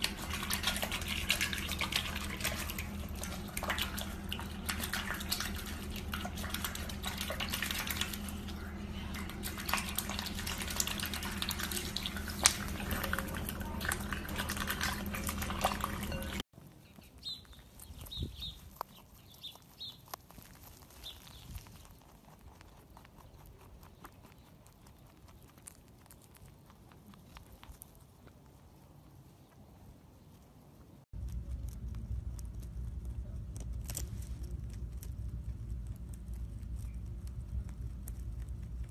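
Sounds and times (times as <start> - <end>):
duckling dabbling in water: 0.0 - 16.4
rabbit chewing grass: 0.0 - 38.9.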